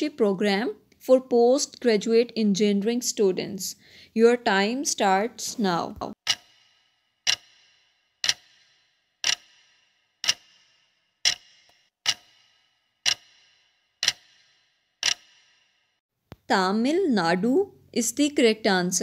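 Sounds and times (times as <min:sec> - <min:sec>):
clock ticks with ringing tail: 0:06.1 - 0:16.0.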